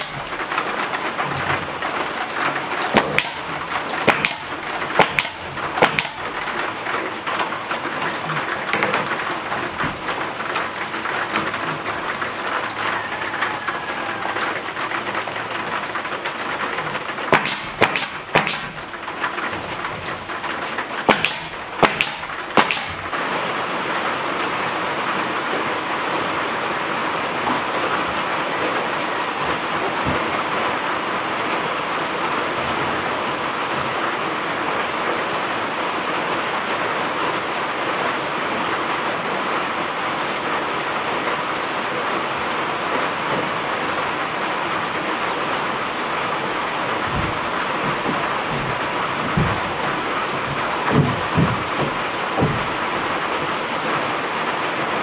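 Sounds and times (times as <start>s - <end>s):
nail gun shots: 0.0s - 0.6s, 2.8s - 6.6s, 17.0s - 23.2s
rain drumming on metal roof: 0.0s - 55.0s.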